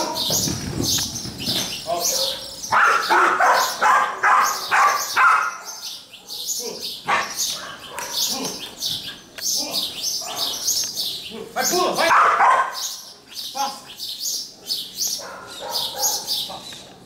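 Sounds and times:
dog barking: 0:02.0 - 0:08.5, 0:10.2 - 0:10.7, 0:12.0 - 0:13.0, 0:15.2 - 0:16.6.

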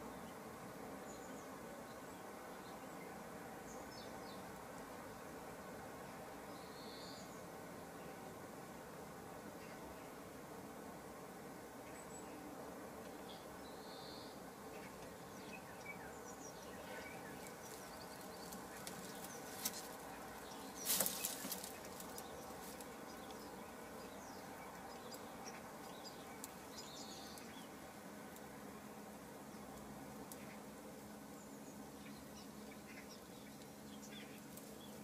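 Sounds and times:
hen rustling in straw: 0:16.8 - 0:23.4.

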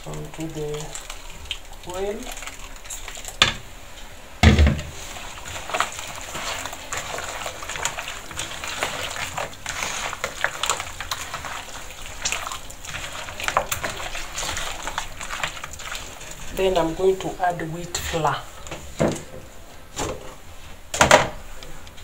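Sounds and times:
hands squelching meat in marinade: 0:00.0 - 0:03.4, 0:04.9 - 0:18.6
thump: 0:04.4 - 0:05.0.

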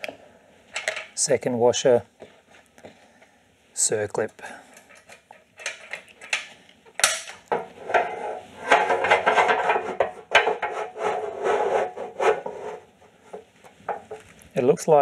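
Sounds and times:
small metal clicks: 0:04.7 - 0:07.5
metal scraping and rattling: 0:04.7 - 0:14.3.

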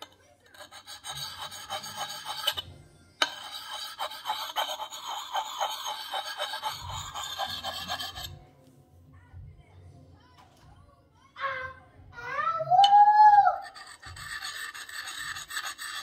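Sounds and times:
sharpening stone scraping axe edge: 0:00.5 - 0:08.4, 0:13.6 - 0:16.0.

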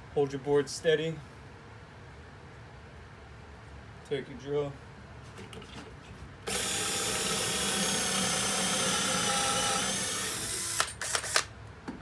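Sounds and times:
cordless drill boring wood: 0:06.5 - 0:11.4.

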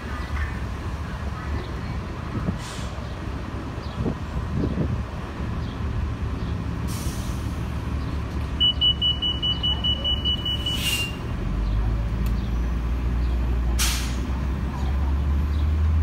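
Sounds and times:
bus engine rumble: 0:00.0 - 0:16.0.

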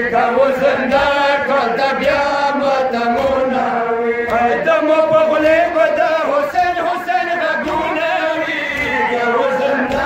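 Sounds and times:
voices chanting a lament: 0:00.0 - 0:10.0.

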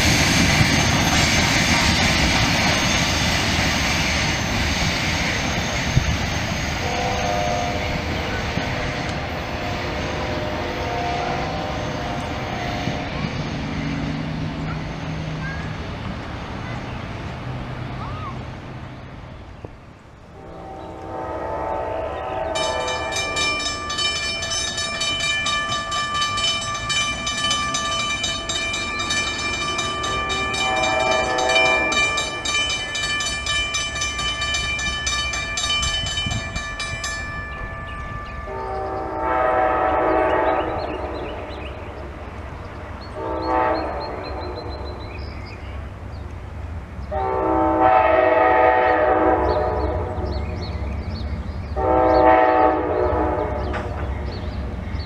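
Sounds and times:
passing train rumble: 0:00.0 - 0:55.0
train horn blasts: 0:06.8 - 0:13.2, 0:20.3 - 0:25.1, 0:29.8 - 0:32.6, 0:37.8 - 0:41.8, 0:43.1 - 0:45.0, 0:47.1 - 0:50.4, 0:51.8 - 0:54.0
bell ringing rapidly: 0:22.6 - 0:38.5.

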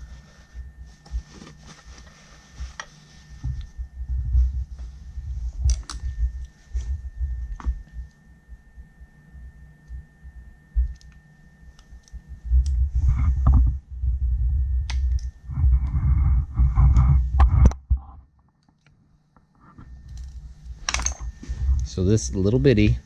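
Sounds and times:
heavy rustling and rubbing: 0:00.0 - 0:08.1, 0:12.8 - 0:14.7, 0:15.4 - 0:18.2, 0:19.5 - 0:23.0.

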